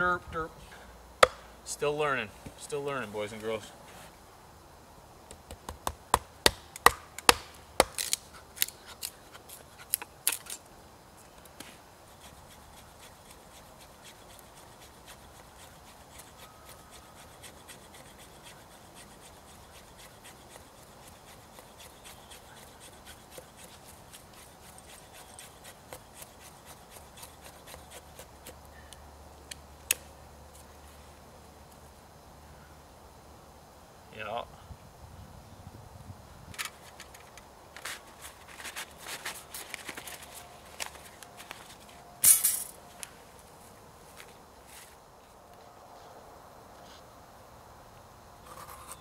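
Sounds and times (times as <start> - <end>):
sharp wooden cracks and knocks: 5.5 - 9.1
knife scraping wood: 7.8 - 10.6, 12.1 - 28.6, 48.4 - 49.0.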